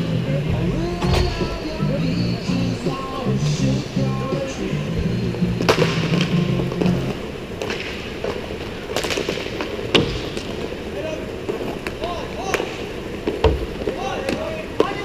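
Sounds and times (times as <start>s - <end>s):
background music with bass: 0.0s - 7.2s
hockey sticks and puck clacking: 5.6s - 15.0s.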